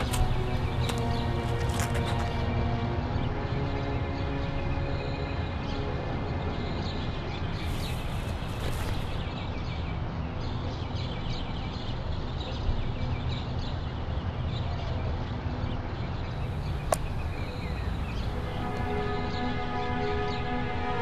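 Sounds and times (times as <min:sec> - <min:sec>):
small birds chirping: 0:00.0 - 0:02.5, 0:06.6 - 0:21.0
low outdoor rumble: 0:16.2 - 0:21.0.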